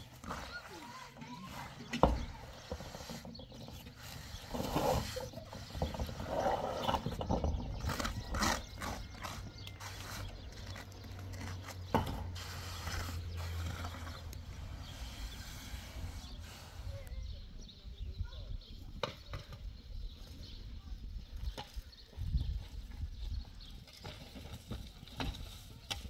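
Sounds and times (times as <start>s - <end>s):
trowel scraping wet mortar: 0.0s - 16.9s.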